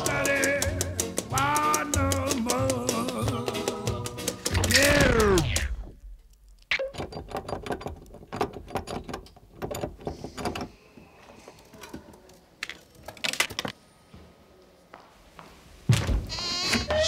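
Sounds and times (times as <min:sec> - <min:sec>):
sharp clicks and taps: 0:00.0 - 0:06.8.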